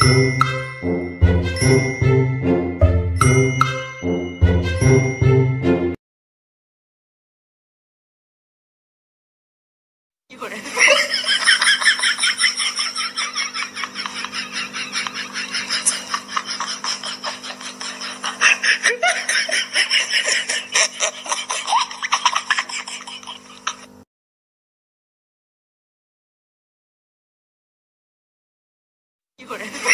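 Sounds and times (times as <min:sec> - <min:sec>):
person laughing hard: 0:10.3 - 0:23.9, 0:29.4 - 0:29.9.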